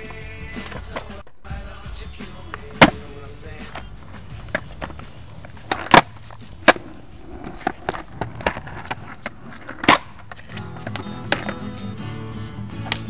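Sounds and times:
skateboard clattering on concrete: 0:00.0 - 0:01.3, 0:02.4 - 0:13.0
strummed guitar music: 0:10.6 - 0:13.0.

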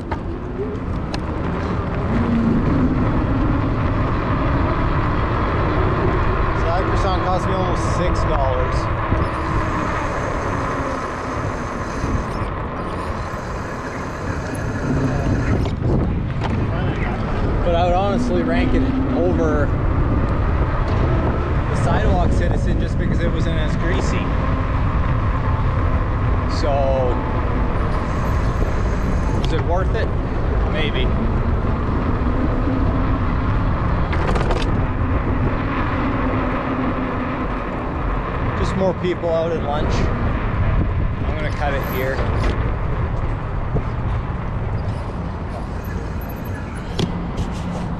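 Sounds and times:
wind buffeting microphone: 0:00.0 - 0:47.9
faint steady hum: 0:00.3 - 0:15.8, 0:25.0 - 0:33.6
bike rolling over pavement: 0:24.4 - 0:38.8.

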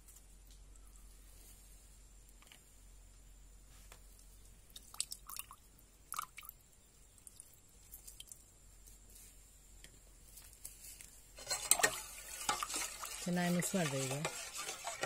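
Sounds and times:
faint wet squishes: 0:03.9 - 0:09.0
juice dripping into bowl: 0:04.7 - 0:08.5.

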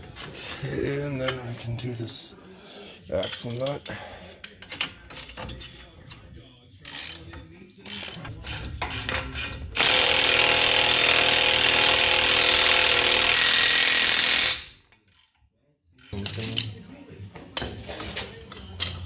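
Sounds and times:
impact wrench hammering: 0:08.5 - 0:14.8.

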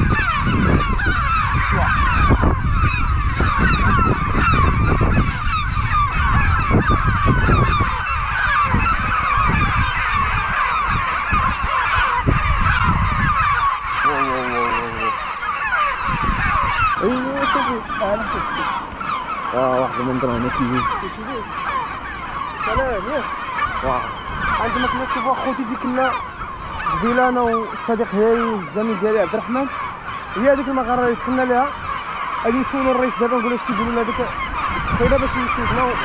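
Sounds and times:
gulls calling: 0:00.0 - 0:36.0
low drawn-out gull call: 0:00.0 - 0:36.0
wind rumble on microphone: 0:00.0 - 0:36.0.

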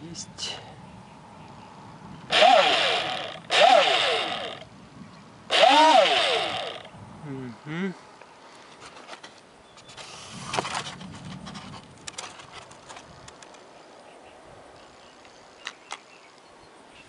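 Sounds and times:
handling scrapes and knocks: 0:08.7 - 0:13.1.

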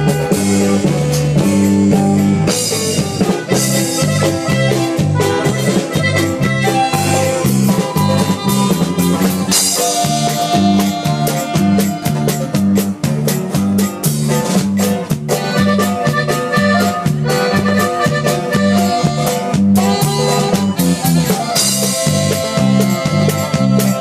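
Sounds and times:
accordion melody: 0:00.0 - 0:24.0
bass line: 0:00.0 - 0:24.0
drum kit: 0:00.0 - 0:24.0
strummed guitar: 0:00.0 - 0:24.0.

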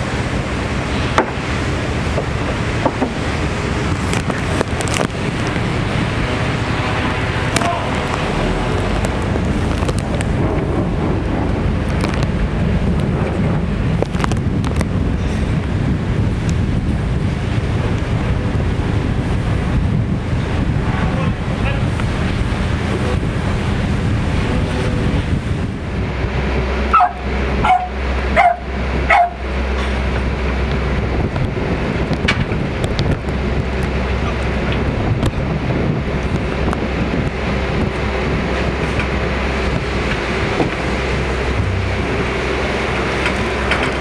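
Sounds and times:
steady low hum: 0:00.0 - 0:44.0
small dog barking: 0:26.9 - 0:29.4.

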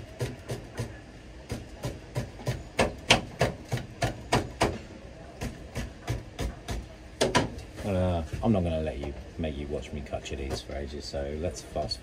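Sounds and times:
knife chopping on wooden board: 0:00.1 - 0:00.9, 0:01.5 - 0:04.8.

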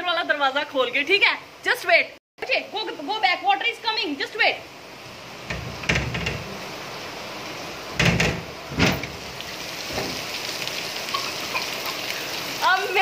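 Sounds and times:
heavy rain: 0:02.5 - 0:13.0
metal door clanking: 0:05.5 - 0:06.6, 0:08.0 - 0:09.2.

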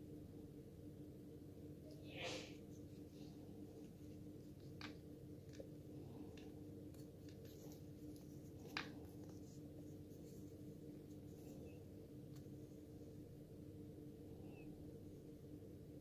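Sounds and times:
steady low hum: 0:00.0 - 0:16.0
watch strap rubbing: 0:06.4 - 0:11.8.

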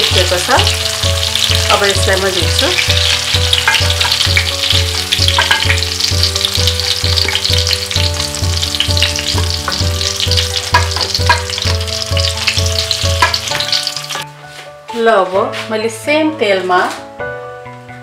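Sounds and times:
hot oil sizzling: 0:00.0 - 0:14.3
background music with beat: 0:00.4 - 0:15.8.

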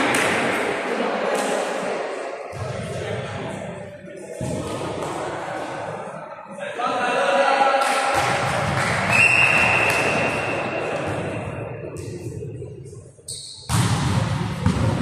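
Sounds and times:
referee's whistle blowing: 0:09.1 - 0:10.4.

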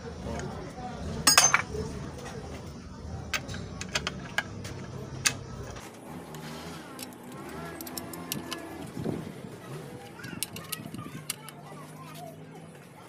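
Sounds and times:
spanner clicking on metal: 0:07.0 - 0:08.6, 0:10.4 - 0:11.6.

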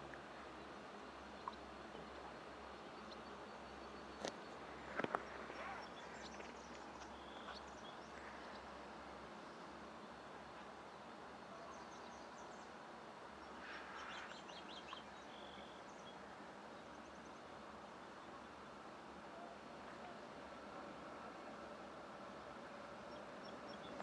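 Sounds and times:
faint outdoor background noise: 0:00.0 - 0:24.0
faint bird chirps: 0:05.2 - 0:08.7, 0:13.4 - 0:16.2.

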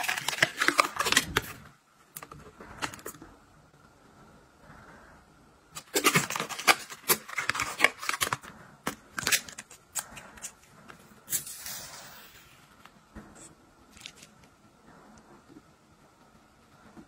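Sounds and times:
plastic packaging crinkling and clicking: 0:00.0 - 0:03.2, 0:05.8 - 0:10.6.

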